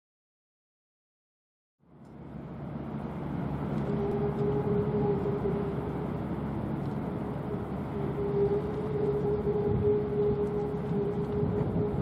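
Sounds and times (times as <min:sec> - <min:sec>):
ship engine low drone: 0:01.8 - 0:12.0
steady higher hum: 0:01.8 - 0:12.0
wind noise: 0:09.3 - 0:12.0.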